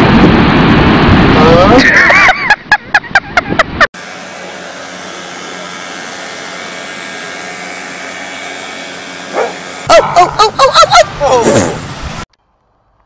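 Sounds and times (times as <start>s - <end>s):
dog barking: 9.3s - 10.3s.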